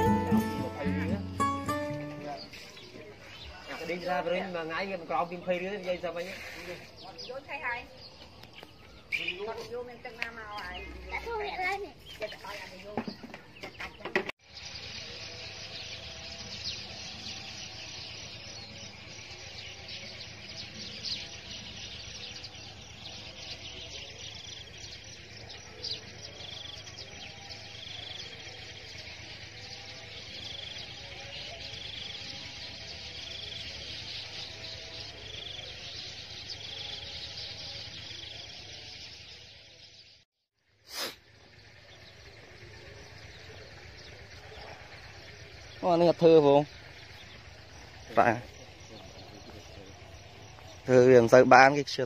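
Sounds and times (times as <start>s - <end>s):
short bird call: 40.8s - 41.3s
insect chorus chirring: 40.8s - 52.0s.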